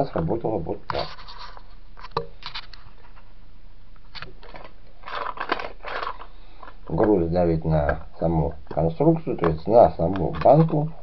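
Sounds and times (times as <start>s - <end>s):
metal spoke scraping a can: 0.9s - 2.7s.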